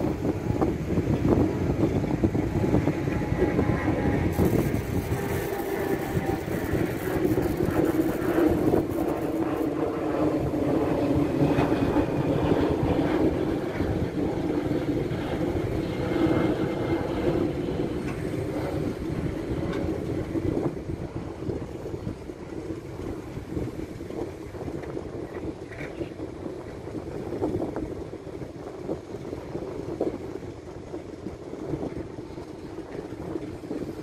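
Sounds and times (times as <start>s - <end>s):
hydraulics working: 2.8s - 9.7s.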